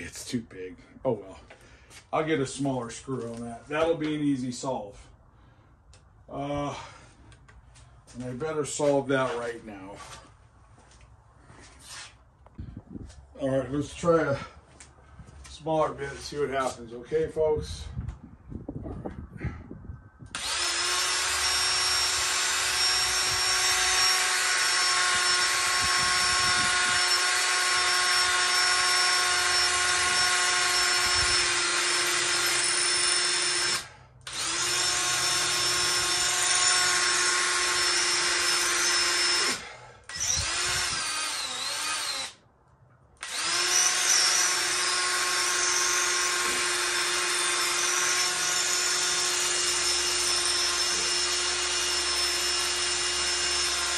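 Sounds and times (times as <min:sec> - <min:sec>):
cordless drill whining: 0:20.2 - 0:42.4, 0:43.2 - 0:53.9.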